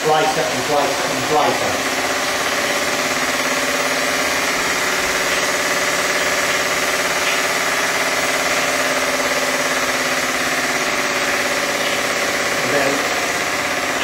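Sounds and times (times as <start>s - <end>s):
model steam engine running: 0.0s - 14.0s.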